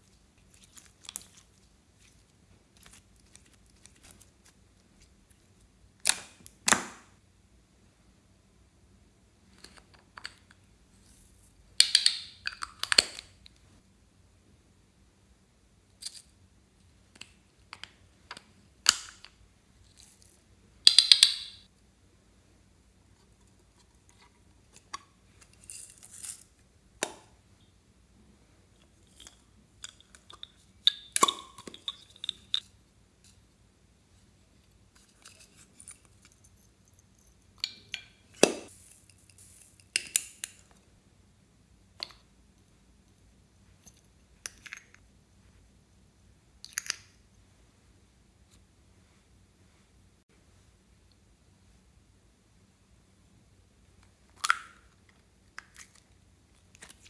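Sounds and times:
beads rattling: 38.7s - 40.0s.

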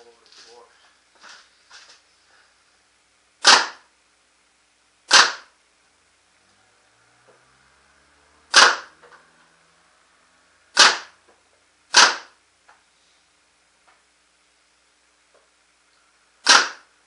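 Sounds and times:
paintball marker shots: 3.4s - 3.9s, 5.1s - 5.6s, 8.5s - 9.0s, 10.8s - 11.2s, 11.9s - 12.4s, 16.4s - 16.9s.

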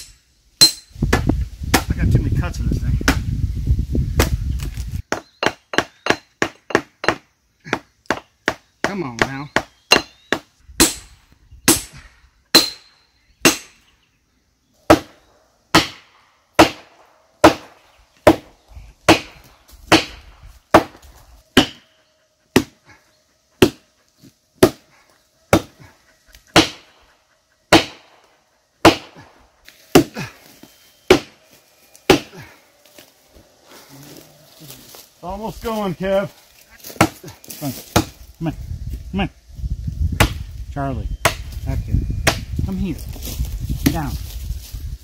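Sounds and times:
hatchet striking wedges: 0.0s - 1.9s, 5.1s - 13.8s, 14.9s - 18.5s, 19.1s - 21.0s, 21.6s - 21.8s, 22.5s - 22.8s, 23.6s - 23.8s, 24.6s - 24.8s, 25.5s - 25.8s, 26.5s - 26.9s, 27.7s - 28.0s, 28.8s - 30.3s, 31.1s - 31.4s, 32.1s - 32.4s, 36.9s - 37.3s, 37.9s - 38.2s.

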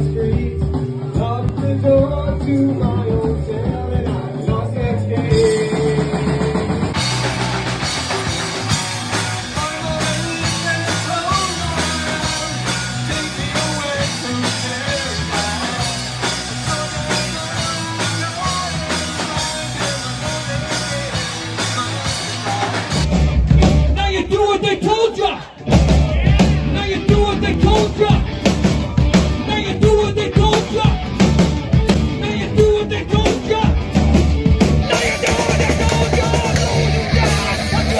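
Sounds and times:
person singing: 0.0s - 7.0s, 8.6s - 28.2s, 34.8s - 37.9s
electric guitars: 0.0s - 24.1s, 25.4s - 37.9s
drums: 0.0s - 37.9s.

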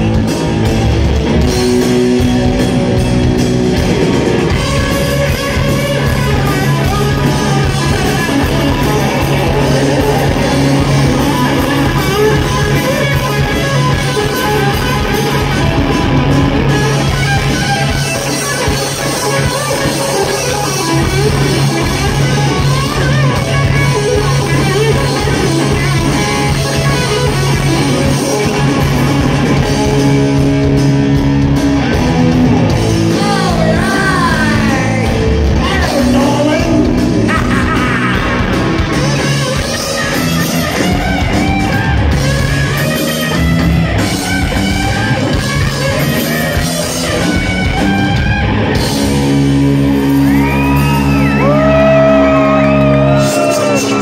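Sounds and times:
heavy metal band playing: 0.0s - 54.0s
person singing: 33.1s - 38.7s.

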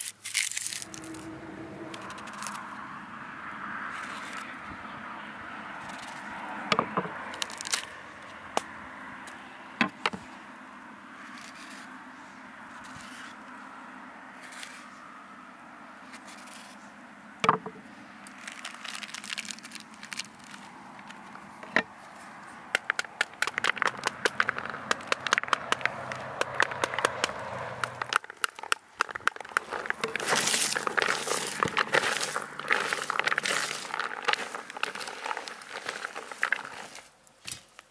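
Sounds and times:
pomegranate rind cracking: 0.0s - 2.7s, 5.8s - 8.7s, 17.4s - 37.8s
hands mixing onions rustle: 18.3s - 37.9s
seeds dropping into plastic bowl: 22.8s - 37.0s.

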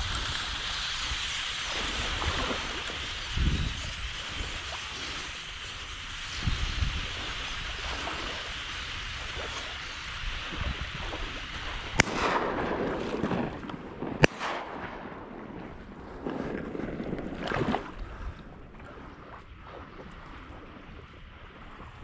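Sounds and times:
rushing water: 0.0s - 22.0s
wind: 0.0s - 22.0s
shotgun shots with echo: 11.9s - 15.8s.

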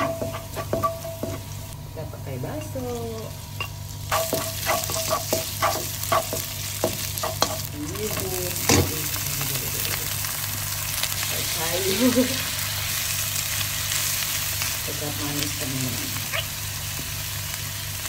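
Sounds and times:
food sizzling in hot oil: 2.8s - 18.0s.

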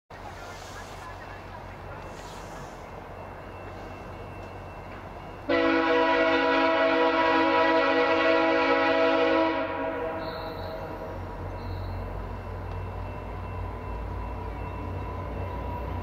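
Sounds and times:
low train rumble: 0.1s - 16.0s
locomotive air horn chord: 5.5s - 11.0s.

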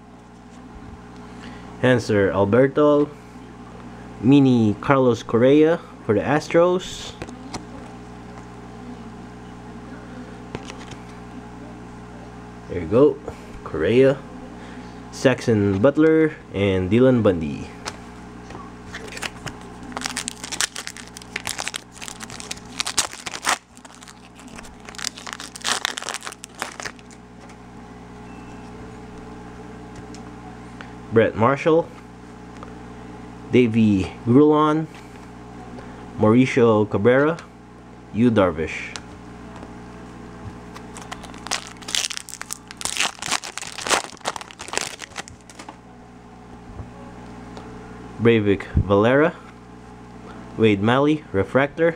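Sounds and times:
foil wrapper crinkling: 18.9s - 27.6s, 40.7s - 45.7s.

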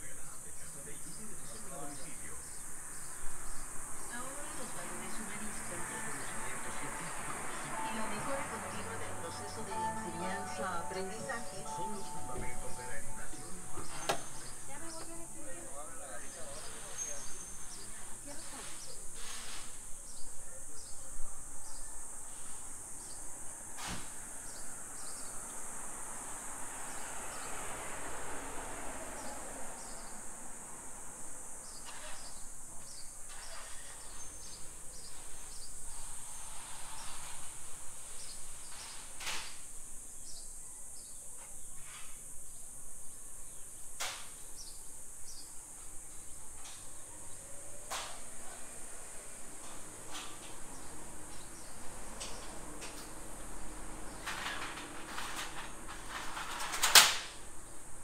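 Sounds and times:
cicadas buzzing: 0.0s - 54.9s
street ambience: 0.0s - 58.0s
car passing: 2.7s - 15.9s, 24.2s - 31.7s.

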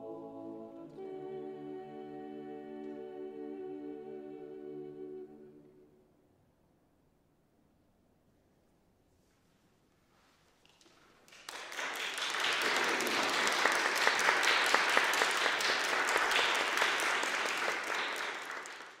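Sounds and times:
audience applauding: 10.7s - 19.0s.

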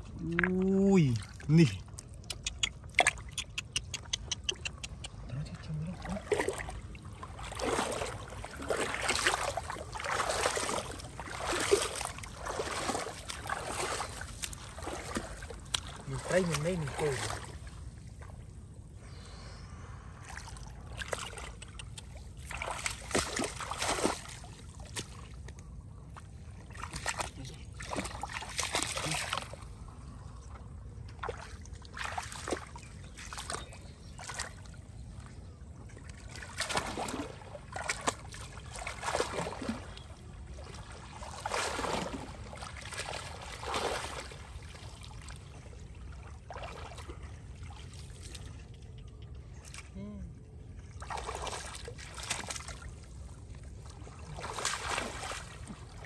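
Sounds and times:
muddy water splashing: 0.0s - 56.0s
steady low rumble: 16.9s - 23.1s.

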